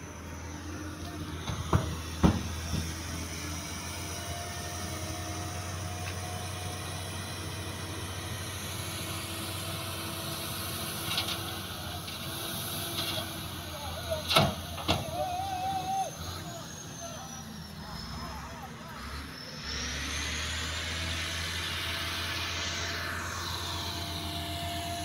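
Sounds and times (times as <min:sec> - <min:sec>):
diesel engines droning: 0:00.0 - 0:25.0
sharp knocks: 0:01.4 - 0:03.0.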